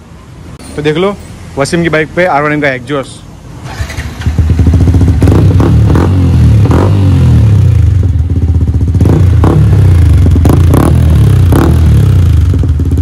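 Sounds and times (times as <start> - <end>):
motorcycle engine idling and revving: 3.5 - 13.0.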